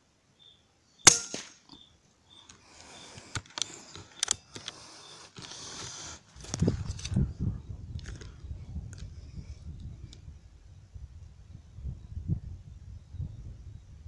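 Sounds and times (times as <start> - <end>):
air rifle shot: 1.0 - 1.6
rustling and clicks of rifle handling: 2.4 - 7.2, 7.9 - 9.1.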